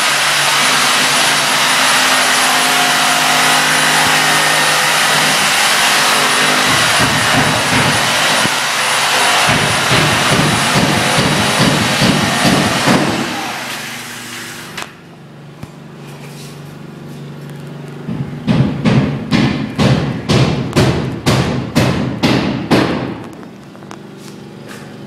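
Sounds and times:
loud rushing noise: 0.0s - 14.8s.

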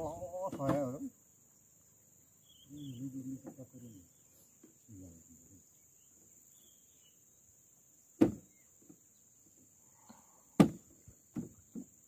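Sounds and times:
high insect drone: 0.0s - 12.0s
sharp knocks: 8.2s - 8.5s, 10.6s - 11.9s.

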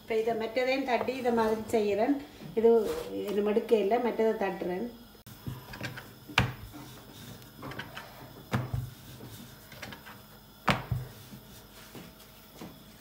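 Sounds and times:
rolling pin knocking on board: 6.4s - 6.7s, 10.6s - 11.1s.

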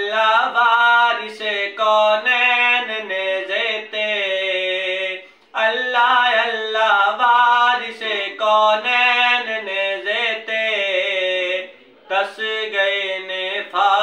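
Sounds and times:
man singing unaccompanied: 0.0s - 14.0s.

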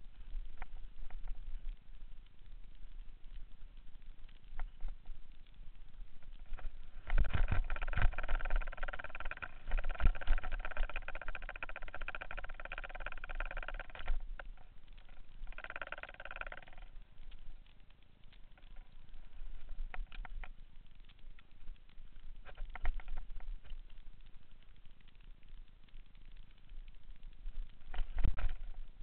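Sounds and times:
mountain bike rattling on dirt trail: 6.4s - 16.9s.

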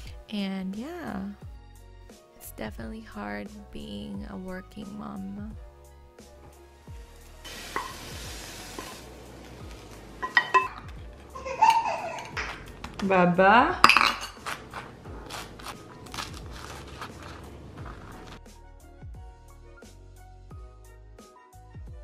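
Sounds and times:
cutlery clinking against a dish: 10.2s - 10.9s, 13.8s - 14.6s
knife scraping dry toast: 14.3s - 18.4s.

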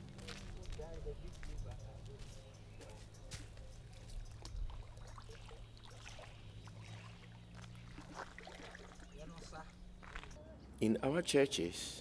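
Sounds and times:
feet splashing in shallow water: 2.9s - 10.4s
bare feet stepping on dirt: 9.4s - 10.4s.

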